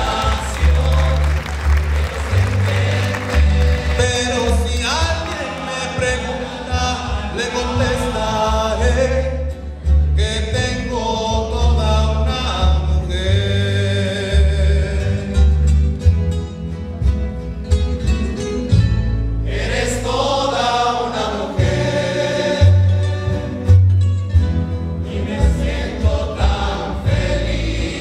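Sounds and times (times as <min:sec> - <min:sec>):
men singing: 0:00.0 - 0:09.6, 0:10.2 - 0:15.6, 0:19.4 - 0:23.7, 0:25.0 - 0:28.0
acoustic guitars ensemble: 0:00.0 - 0:28.0
plucked double bass: 0:00.0 - 0:28.0.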